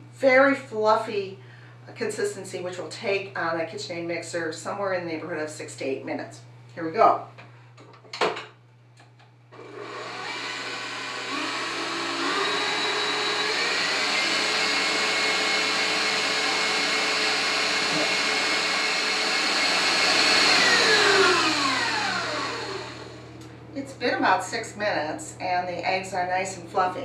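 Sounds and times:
stand mixer motor whine: 9.5 - 23.5.

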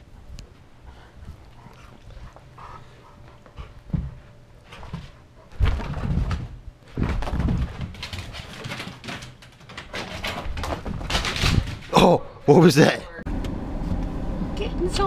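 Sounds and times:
dogs scuffling: 1.0 - 11.9.

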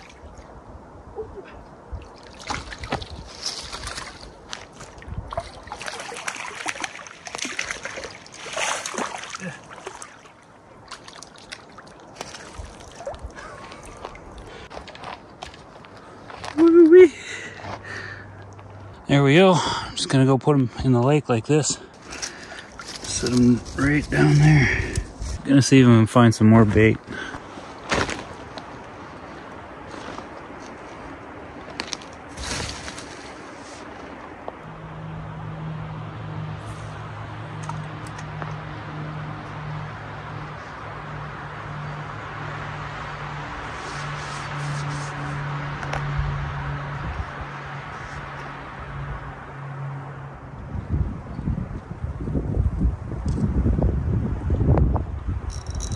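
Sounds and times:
fish splashing in water: 2.0 - 14.4
net scraping and rustling brush: 2.2 - 16.6, 27.4 - 34.2, 43.7 - 45.4
hands rustling through rotten wood: 21.9 - 25.4, 29.8 - 34.3.

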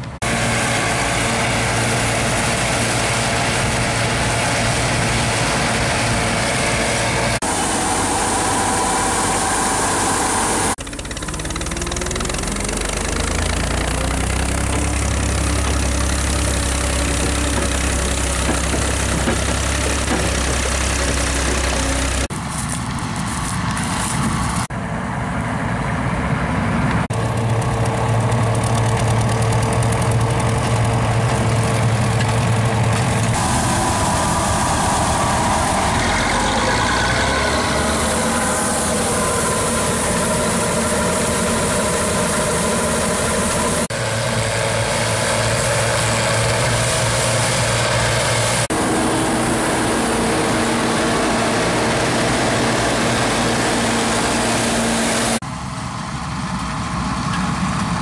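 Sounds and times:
diesel tractor engine running: 0.0 - 58.0
grain pouring into trailer: 27.2 - 43.8.

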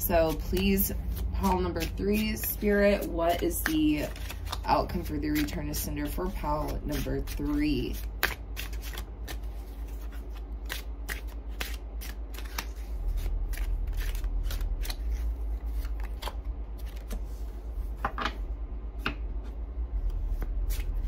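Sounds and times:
cards being shuffled by hand: 0.1 - 18.1, 20.0 - 21.0.

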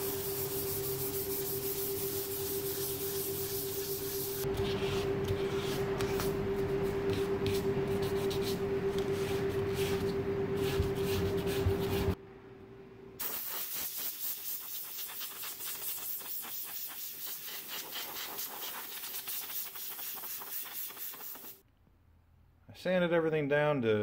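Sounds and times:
steady machine hum: 0.0 - 13.2.

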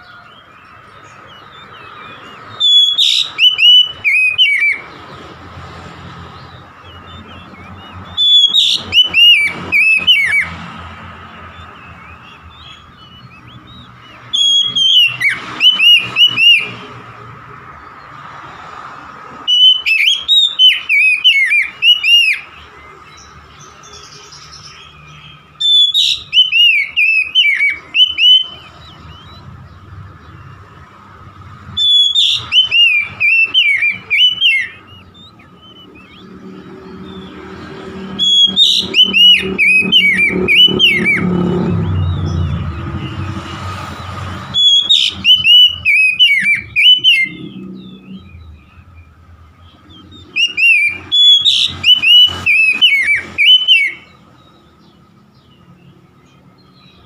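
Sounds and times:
bird singing whistled phrases: 0.0 - 4.9, 6.8 - 10.6, 11.6 - 16.9, 19.5 - 30.8, 31.7 - 43.4, 44.0 - 55.0.

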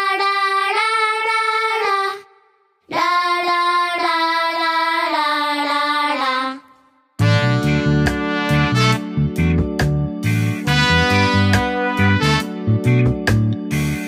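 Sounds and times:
high voice singing wordless melody: 0.0 - 7.0.

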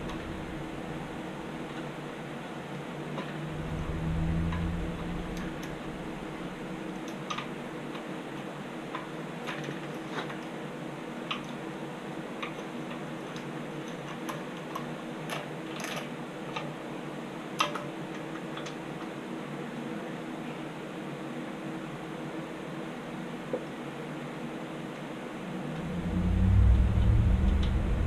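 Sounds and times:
low steady hum: 0.0 - 8.4, 25.1 - 28.0.

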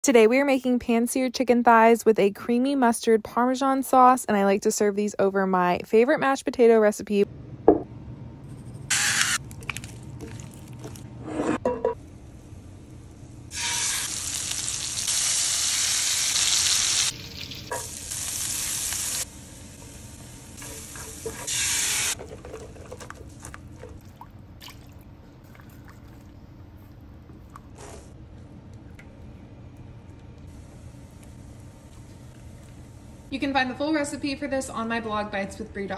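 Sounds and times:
food sizzling in a skillet: 13.5 - 22.2.

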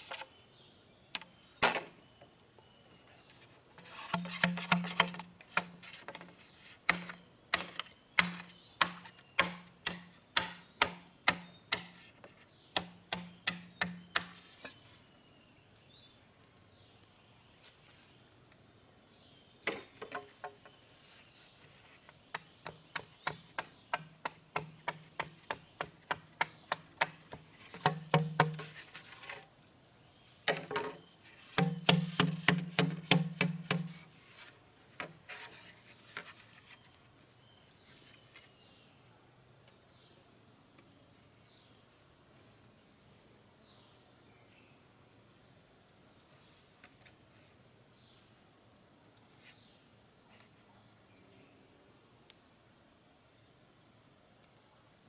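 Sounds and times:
insects buzzing: 0.0 - 55.0
hollow knocks on bamboo: 4.0 - 14.8, 19.6 - 20.8, 22.3 - 29.4, 30.5 - 34.1.

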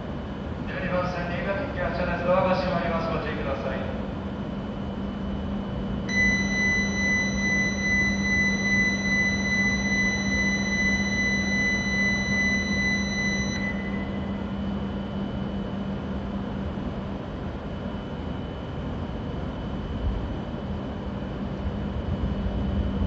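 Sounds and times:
steady low hum: 0.0 - 23.0
electronic warning tone: 4.6 - 16.4.

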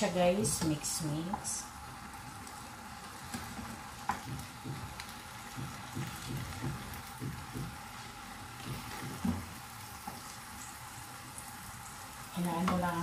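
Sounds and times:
faint sizzle: 0.0 - 13.0
wooden spatula knocking in a pan: 3.3 - 10.2.

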